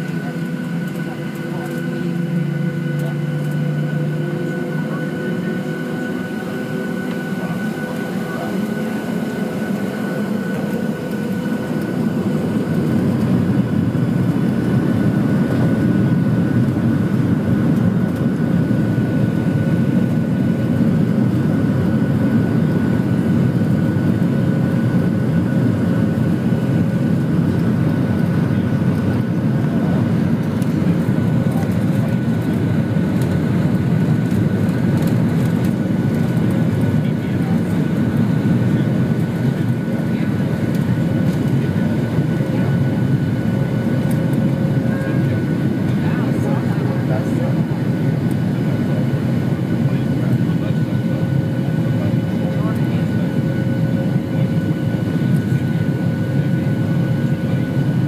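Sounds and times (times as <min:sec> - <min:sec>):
high engine whine: 0:00.0 - 0:58.0.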